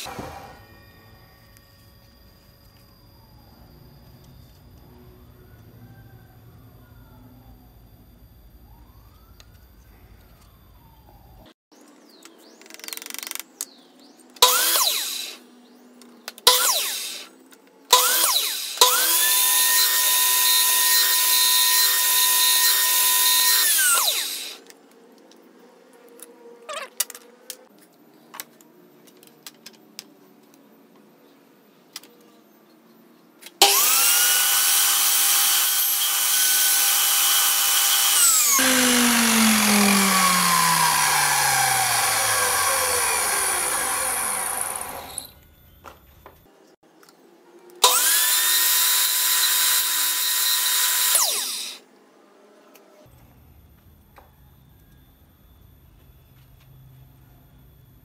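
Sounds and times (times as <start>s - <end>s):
saw blade cutting wood: 0.0s - 0.8s, 14.4s - 15.4s, 16.5s - 17.3s, 18.0s - 24.7s, 33.6s - 45.3s, 47.8s - 51.8s
miter saw motor running: 14.4s - 15.4s, 16.5s - 17.3s, 18.0s - 24.6s, 33.6s - 45.3s, 47.8s - 51.8s.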